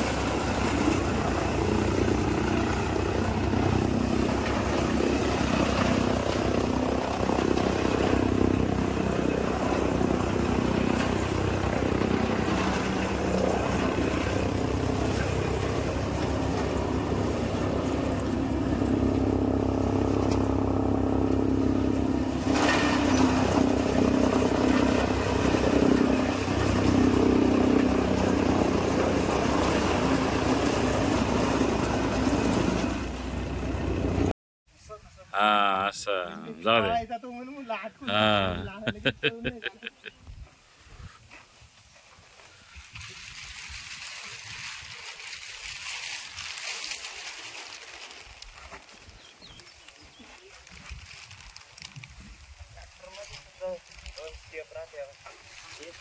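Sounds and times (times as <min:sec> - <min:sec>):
tractor engine: 0:00.0 - 0:34.3.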